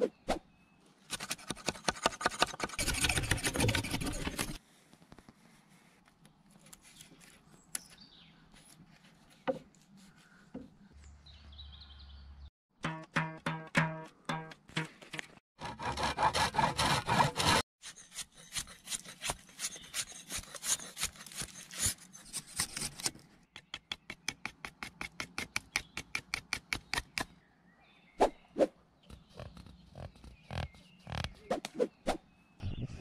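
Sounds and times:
hand tool scraping wood: 1.1 - 4.6, 15.6 - 23.1.

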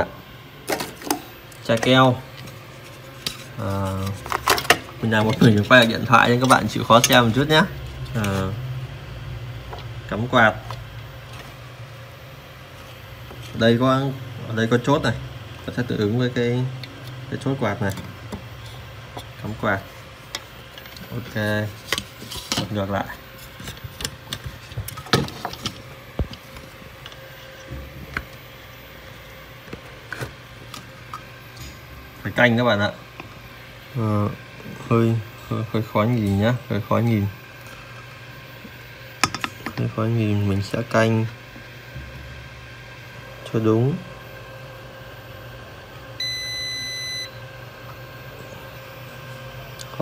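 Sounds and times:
steady low hum: 0.0 - 50.0
electronic beep: 46.2 - 47.4.

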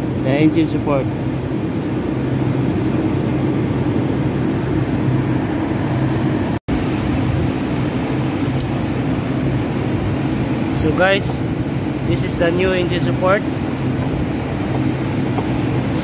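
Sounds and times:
car engine idling: 7.6 - 16.0.

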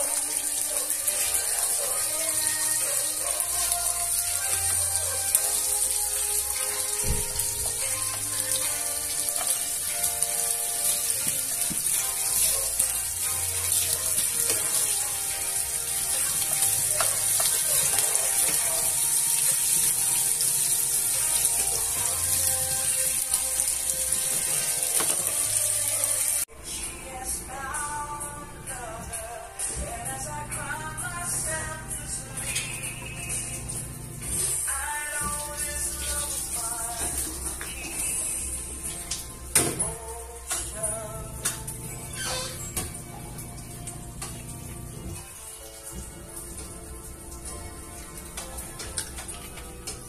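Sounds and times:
fish sizzling in hot oil: 0.0 - 26.5
background music with steady beat: 0.0 - 50.0.

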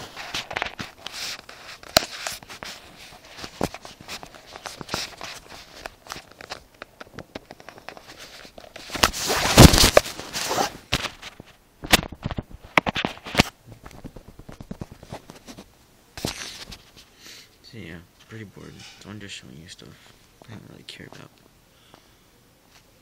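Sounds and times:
phone microphone handling rustle: 0.0 - 17.1.

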